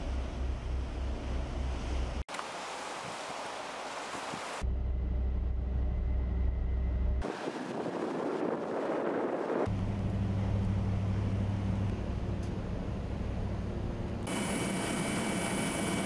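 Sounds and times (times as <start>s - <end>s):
low machinery hum: 0.0s - 2.2s, 9.7s - 16.0s
rushing sea: 0.0s - 4.6s, 7.2s - 10.4s
wind: 0.0s - 16.0s.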